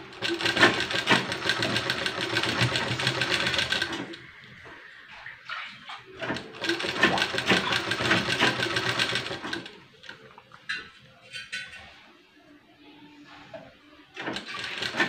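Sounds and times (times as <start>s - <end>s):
sewing machine stitching: 0.1s - 4.2s, 6.2s - 9.8s, 14.2s - 15.0s.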